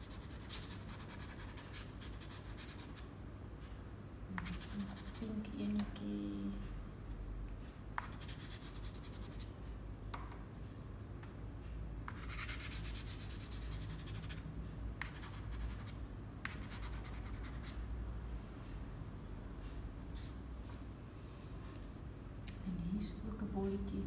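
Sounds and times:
pastel scratching on paper: 0:00.0 - 0:03.1, 0:04.4 - 0:05.3, 0:08.0 - 0:09.5, 0:12.1 - 0:14.4, 0:15.0 - 0:17.8.

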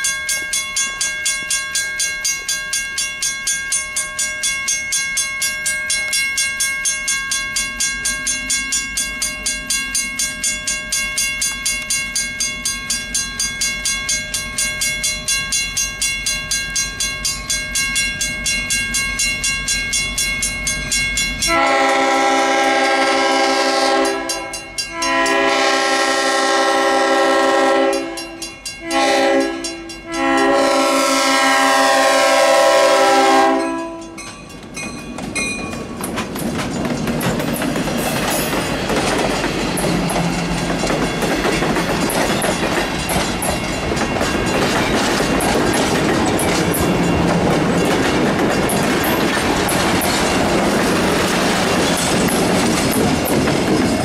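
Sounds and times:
crossing bell ringing: 0:00.0 - 0:54.0
diesel locomotive engine rumble: 0:07.6 - 0:54.0
train horn blasts: 0:21.4 - 0:34.2.

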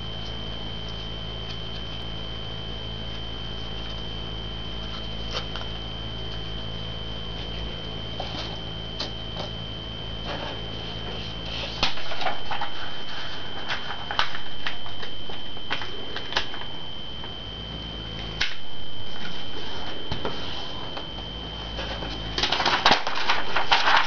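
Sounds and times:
steady high whine: 0:00.0 - 0:24.0
paper rustling and crinkling: 0:04.8 - 0:06.7, 0:07.3 - 0:09.6, 0:10.2 - 0:16.8, 0:18.4 - 0:24.0.

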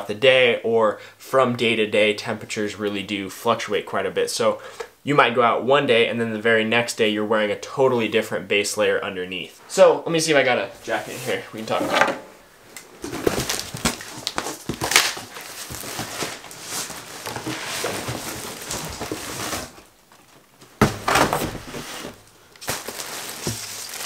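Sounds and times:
cardboard scraping and rustling: 0:10.8 - 0:12.3, 0:13.0 - 0:24.0
plastic wrapping crinkling: 0:12.8 - 0:24.0.

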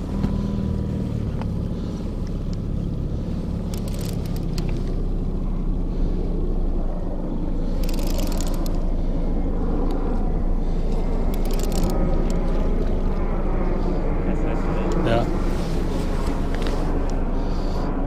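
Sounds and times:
outboard motor running: 0:00.0 - 0:18.0
short crackling bursts: 0:03.2 - 0:05.2, 0:07.6 - 0:08.9, 0:10.6 - 0:13.2.

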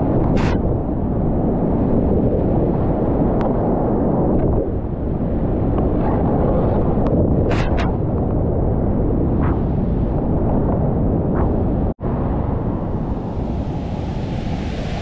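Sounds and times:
muffled whitewater rushing: 0:12.0 - 0:15.0.

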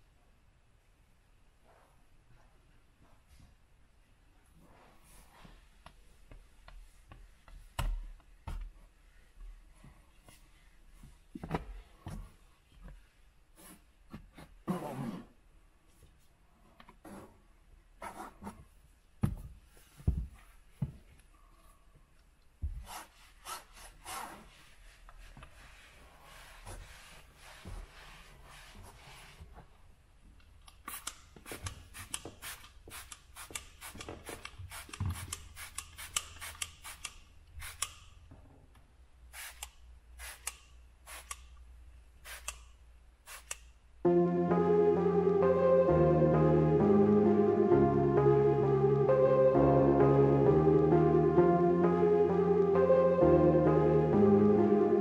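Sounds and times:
cloth wiping glass: 0:22.8 - 0:29.7
spray bottle hissing: 0:39.4 - 0:39.6, 0:40.2 - 0:40.5, 0:41.1 - 0:41.3, 0:42.2 - 0:42.5, 0:43.3 - 0:43.6.

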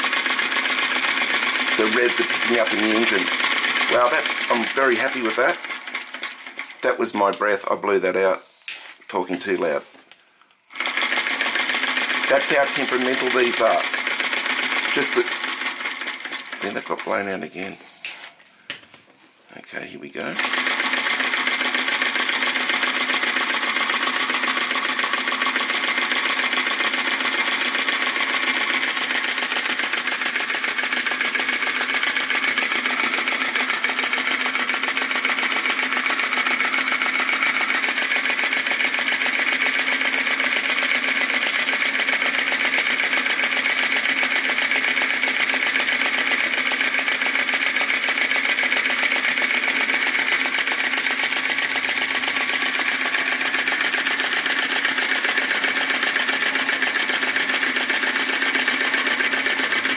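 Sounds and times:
vacuum engine mechanical clatter: 0:00.1 - 0:06.9, 0:10.8 - 0:17.1.

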